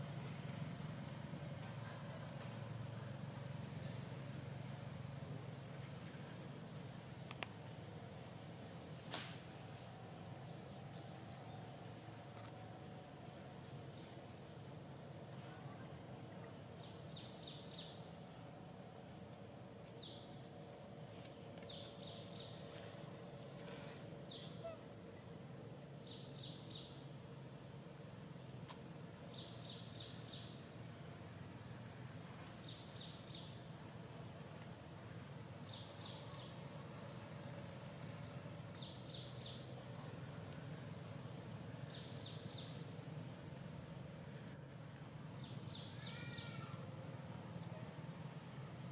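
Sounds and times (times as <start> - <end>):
faint low hum: 0.0 - 48.9
bird short call: 24.3 - 24.9, 45.8 - 46.8.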